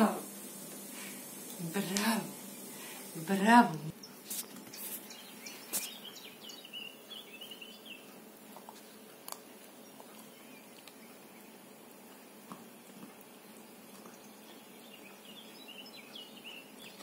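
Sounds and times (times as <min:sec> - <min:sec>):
puppy chewing bone: 0:08.1 - 0:15.6.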